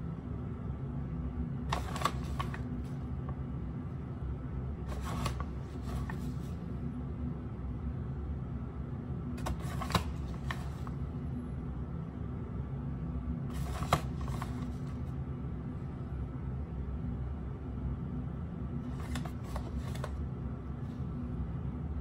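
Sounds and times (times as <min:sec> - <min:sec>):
paper bag rustling: 0:04.9 - 0:06.6, 0:13.5 - 0:15.0.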